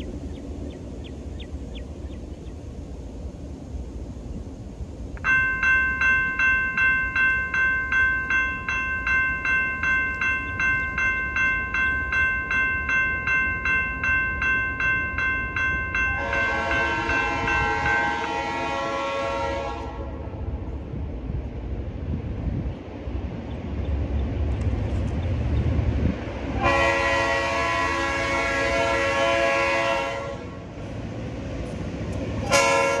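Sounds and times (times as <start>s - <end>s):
crossing signal bell ringing: 5.2s - 18.5s
train horn blast: 16.1s - 20.5s, 26.6s - 30.7s, 32.4s - 33.0s.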